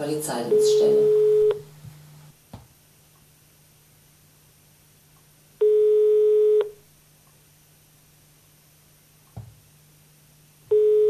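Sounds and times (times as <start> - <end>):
telephone ringback beep: 0.5 - 1.6, 5.6 - 6.8, 10.7 - 11.0.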